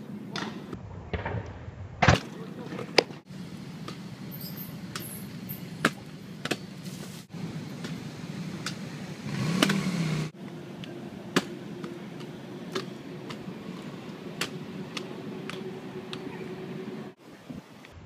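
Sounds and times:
scooter wheels rolling: 0:11.3 - 0:17.0.

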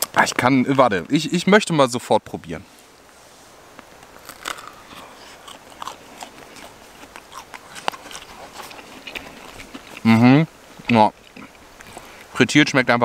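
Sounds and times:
crunchy chewing of bread: 0:04.2 - 0:10.2, 0:10.8 - 0:12.3.

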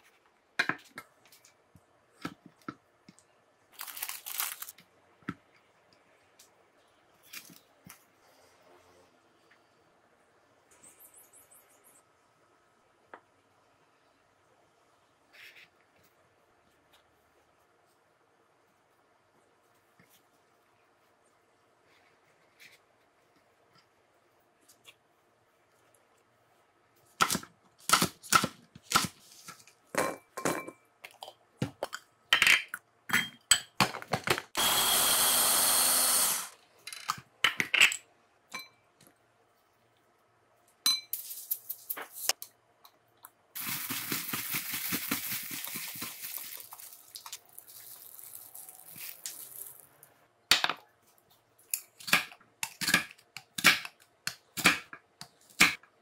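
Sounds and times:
loud steady whirr: 0:34.6 - 0:36.6.

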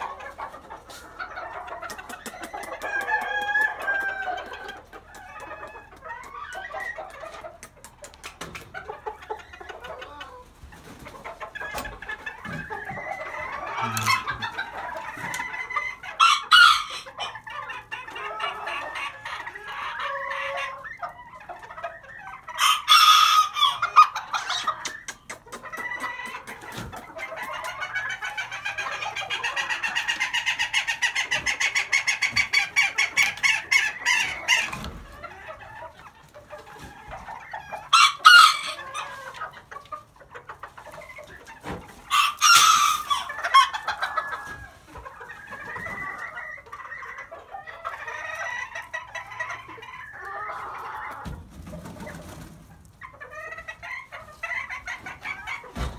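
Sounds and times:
chickens clucking: 0:00.0 - 0:55.9
rooster crowing: 0:02.9 - 0:04.5.

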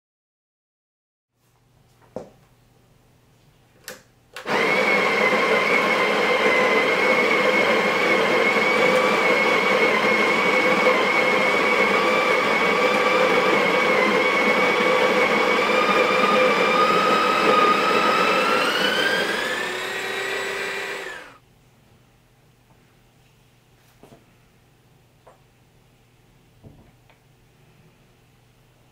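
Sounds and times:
coffee grinder motor whine: 0:04.4 - 0:21.4.

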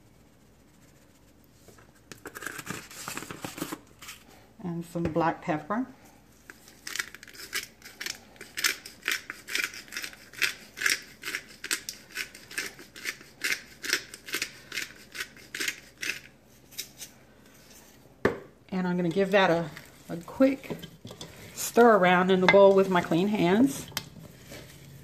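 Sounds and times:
pepper grinder crunching: 0:06.7 - 0:17.0.

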